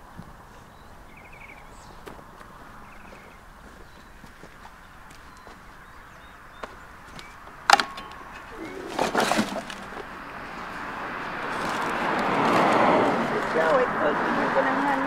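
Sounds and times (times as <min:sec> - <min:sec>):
boulder scraping: 0:07.2 - 0:13.8.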